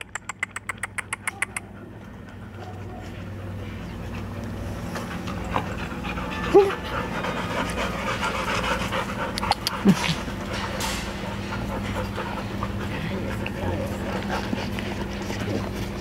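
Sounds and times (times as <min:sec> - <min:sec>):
dog panting: 0:00.0 - 0:16.0
dog whimper: 0:06.0 - 0:08.0.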